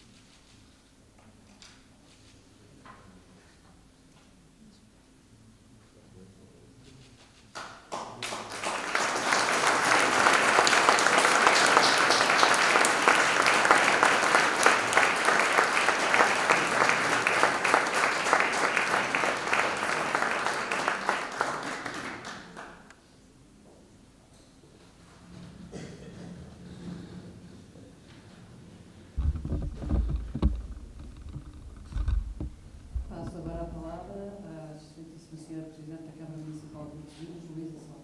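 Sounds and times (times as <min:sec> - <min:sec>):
audience applauding: 0:07.6 - 0:22.9.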